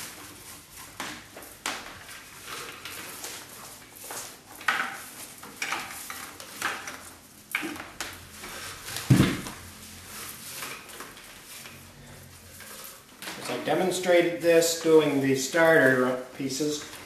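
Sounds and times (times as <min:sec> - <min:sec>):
paper cord swishing and rustling: 0:00.0 - 0:07.2, 0:07.9 - 0:14.1
dull thump: 0:09.1 - 0:09.6.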